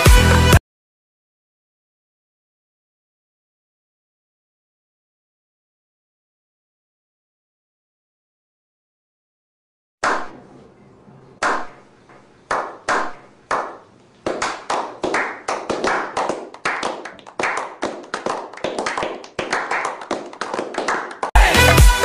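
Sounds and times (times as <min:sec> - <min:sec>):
people clapping: 0:12.5 - 0:22.0.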